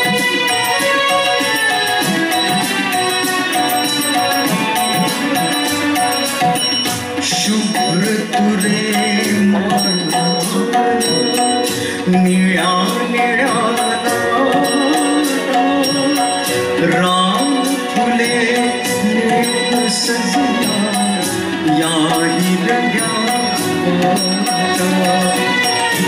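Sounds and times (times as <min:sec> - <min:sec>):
instrumental accompaniment: 0:00.0 - 0:26.0
steady percussion beat: 0:00.0 - 0:26.0
man singing: 0:07.2 - 0:26.0.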